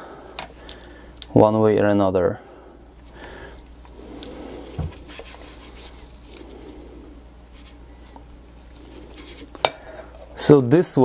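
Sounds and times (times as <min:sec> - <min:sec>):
light clicks of probes: 0:00.4 - 0:01.3.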